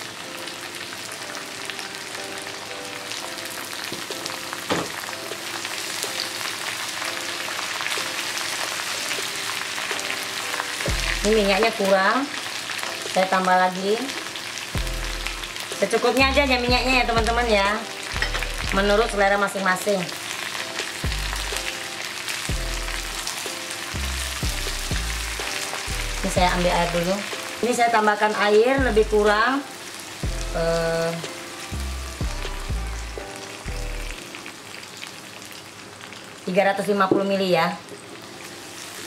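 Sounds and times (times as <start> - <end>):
vegetables sizzling in oil: 0.0 - 39.0
background music with bass and beats: 10.9 - 11.5, 21.0 - 21.7, 22.5 - 23.3, 24.0 - 26.9, 28.8 - 29.4, 31.8 - 34.2.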